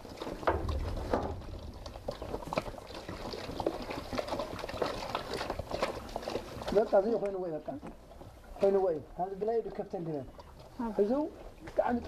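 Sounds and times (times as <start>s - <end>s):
hand splashing wet feed: 0.0s - 7.9s
water pouring into plastic basin: 0.0s - 9.0s.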